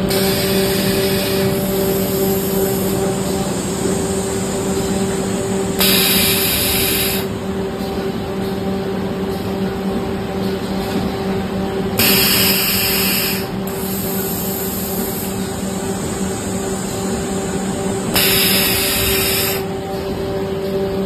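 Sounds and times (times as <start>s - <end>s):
compressed air hissing: 0.0s - 7.4s, 12.0s - 20.0s
machine humming: 0.0s - 21.0s.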